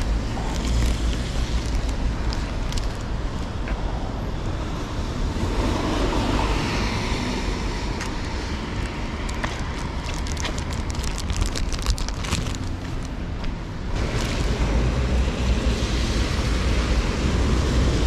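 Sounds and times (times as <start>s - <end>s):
small crackles and ticks: 0.0s - 3.5s, 8.0s - 13.2s
wind rumbling on microphone: 0.0s - 18.0s.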